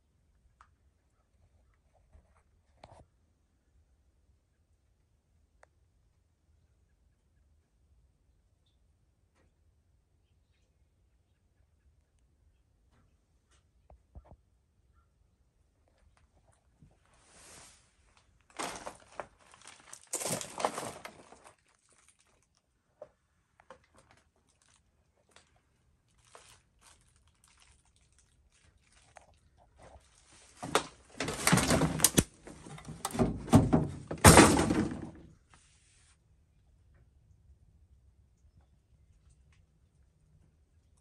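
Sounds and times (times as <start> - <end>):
hands rummaging through metal bin: 18.5 - 21.6, 30.2 - 35.3.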